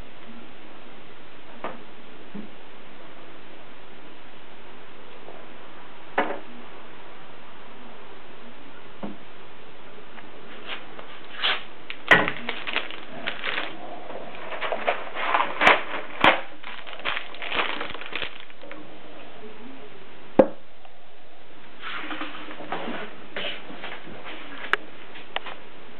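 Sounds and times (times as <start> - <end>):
plastic packets crinkling: 11.2 - 18.8.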